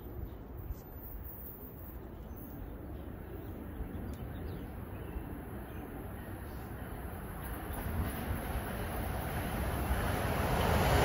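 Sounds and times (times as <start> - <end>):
train rumble approaching: 2.6 - 11.0.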